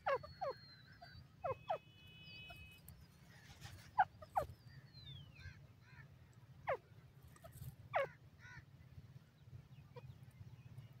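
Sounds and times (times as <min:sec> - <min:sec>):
low steady rumble: 0:04.2 - 0:11.0.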